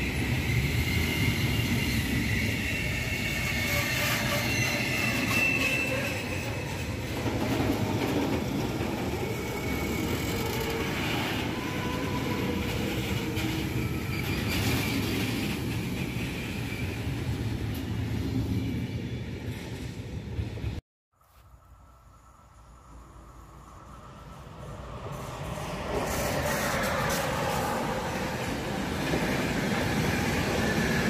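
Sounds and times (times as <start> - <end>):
wheels squealing: 0.0 - 7.7, 8.4 - 17.4
train wheels rumbling on rail: 0.0 - 20.8, 22.8 - 31.0.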